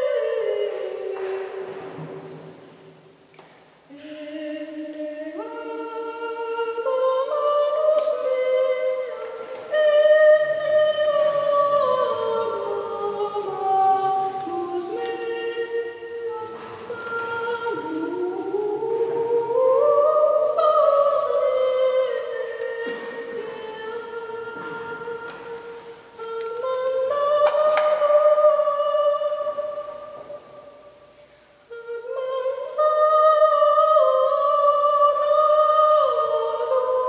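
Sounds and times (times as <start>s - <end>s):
high voice singing: 0.0s - 2.0s, 3.9s - 30.6s.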